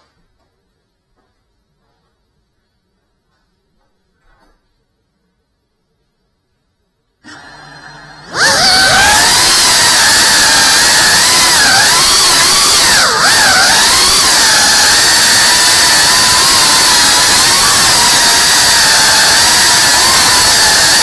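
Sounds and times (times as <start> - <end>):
drone motors whining in flight: 8.4 - 21.0.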